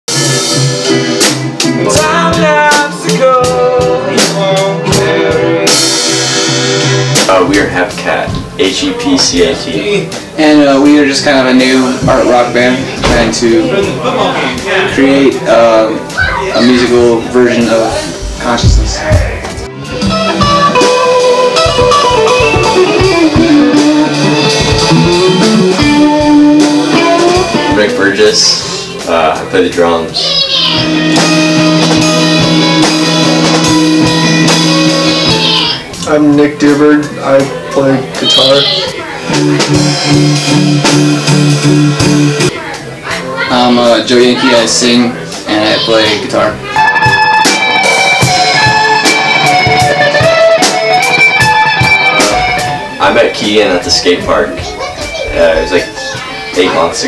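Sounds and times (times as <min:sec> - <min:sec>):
drum kit: 0:00.1 - 0:57.0
electric guitars: 0:00.1 - 0:57.0.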